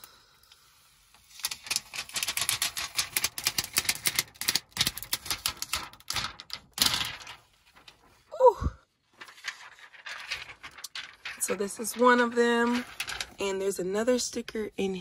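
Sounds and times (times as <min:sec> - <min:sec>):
plastic film rustle: 0:01.1 - 0:08.4, 0:09.0 - 0:13.4
plastic film peeling off crackling: 0:01.2 - 0:08.3, 0:09.1 - 0:13.4.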